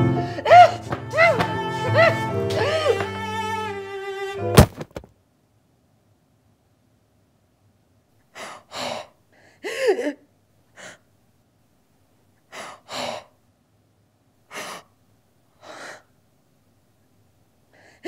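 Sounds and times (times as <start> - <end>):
woman's short voiced cry: 0.4 - 3.1
woman gasping: 8.4 - 10.2, 17.8 - 18.0.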